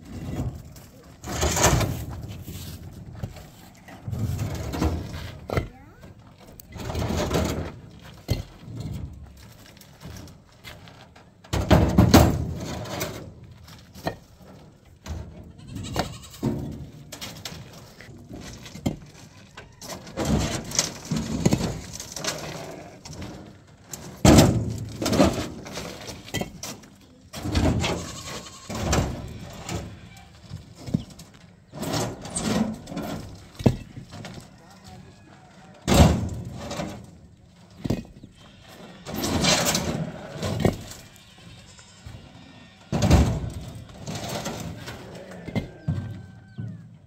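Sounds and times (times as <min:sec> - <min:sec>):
concrete blocks knocking and scraping: 0:00.0 - 0:41.2, 0:42.9 - 0:47.0
livestock bleating: 0:15.5 - 0:16.5, 0:27.8 - 0:30.4, 0:38.3 - 0:43.9, 0:44.7 - 0:46.6.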